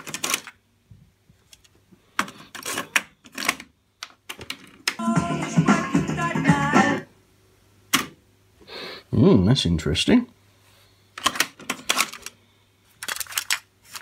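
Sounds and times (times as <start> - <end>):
music playing from tape: 5.0 - 7.1.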